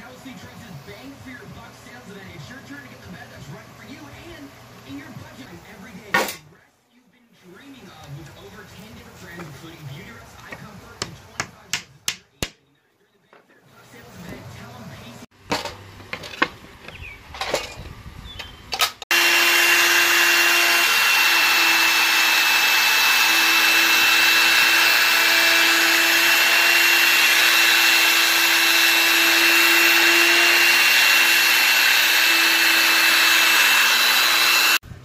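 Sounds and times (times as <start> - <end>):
wood router cutting with high whine: 19.1 - 34.8.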